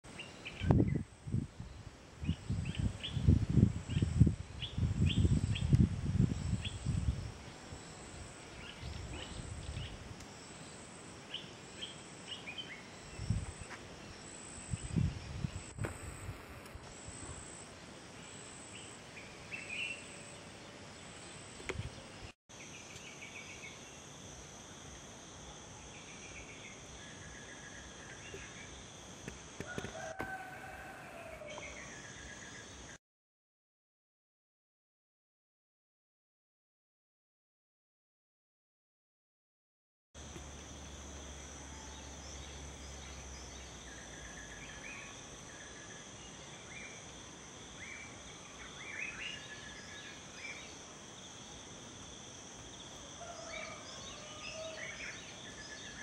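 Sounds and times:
wind rumbling on microphone: 0.5 - 10.2, 13.1 - 13.7, 14.7 - 17.4
high insect trill: 22.5 - 33.0, 40.2 - 56.0.

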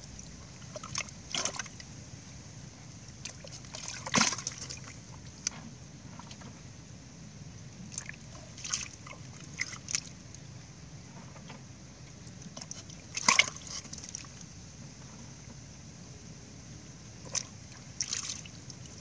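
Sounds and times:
fish splashing in shallow water: 0.0 - 2.0, 3.0 - 6.5, 7.8 - 10.2, 12.3 - 14.5, 17.2 - 19.0.

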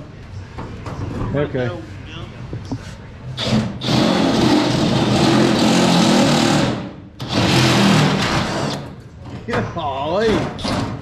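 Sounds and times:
drill cutting sheet metal: 3.4 - 8.8.

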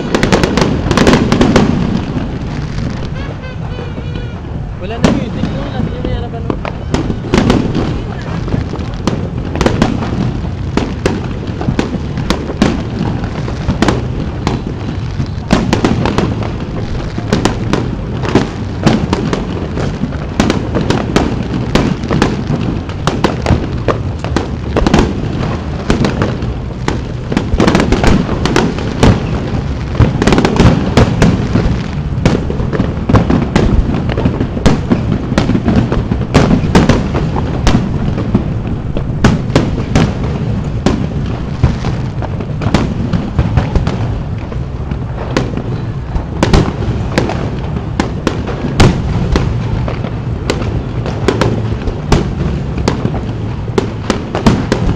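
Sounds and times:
firework shells bursting: 0.0 - 54.9.

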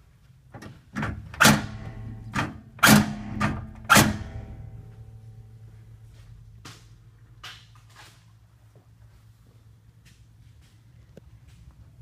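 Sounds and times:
knocks on metal tool box: 1.0 - 4.4.

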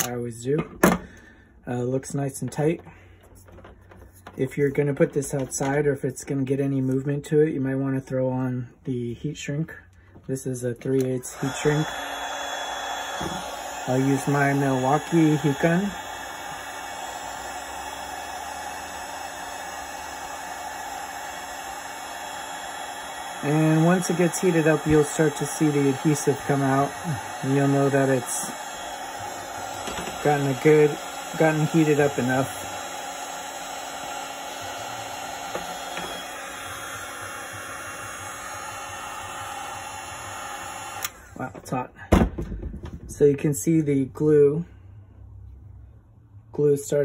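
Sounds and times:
heat gun fan blowing: 10.4 - 41.9.

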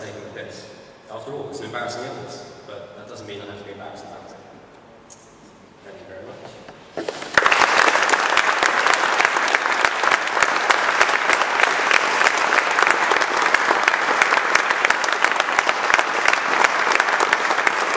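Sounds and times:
audience applauding: 7.1 - 17.9.

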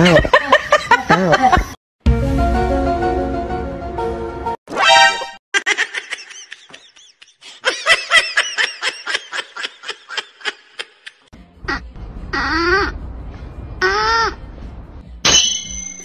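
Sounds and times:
person laughing hard: 0.0 - 1.8, 5.6 - 11.3.

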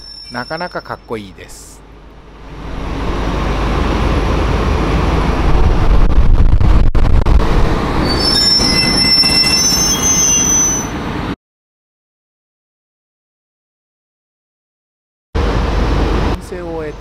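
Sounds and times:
train wheels squealing: 0.0 - 1.2, 8.0 - 11.0
locomotive low rumble: 0.0 - 9.6.

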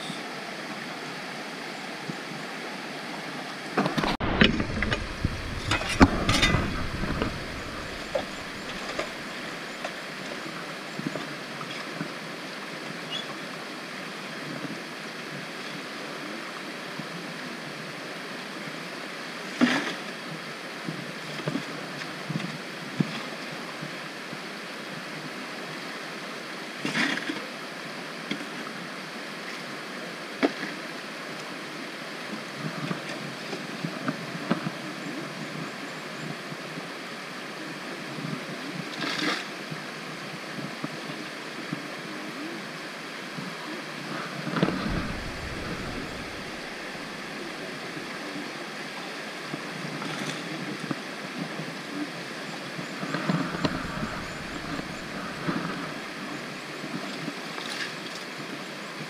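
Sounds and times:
rocky creek rushing: 0.0 - 16.9, 39.4 - 59.0.

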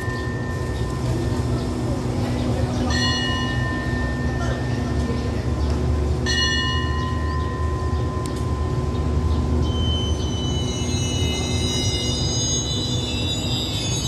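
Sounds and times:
train low rumble: 0.0 - 14.0
high-pitched metallic squealing: 6.6 - 14.0.

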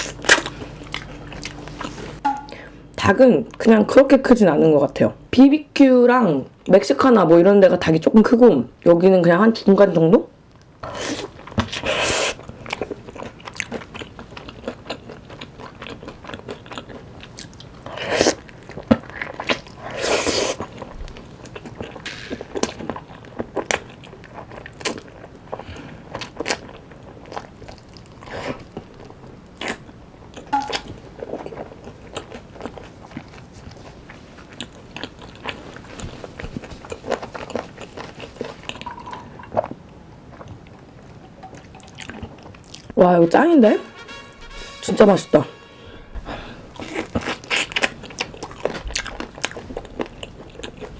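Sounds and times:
biting and chewing fried chicken: 10.8 - 38.9, 46.8 - 50.9.

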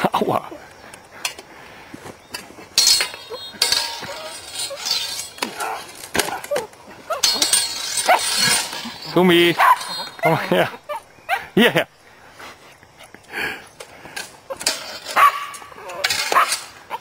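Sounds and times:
swords clashing: 2.8 - 10.8.

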